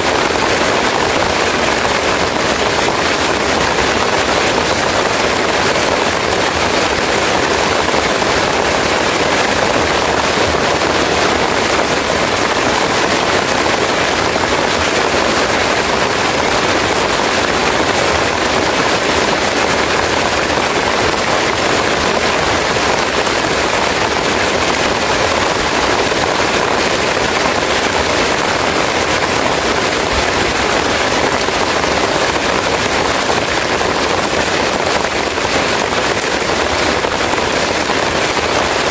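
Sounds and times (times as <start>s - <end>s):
heavy rain on leaves: 0.0s - 38.9s.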